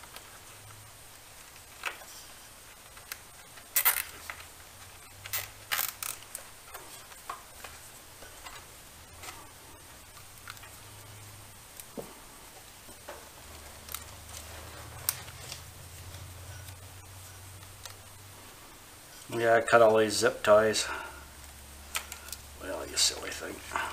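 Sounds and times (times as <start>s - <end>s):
zip ties and wiring clicking: 2.7s - 7.2s.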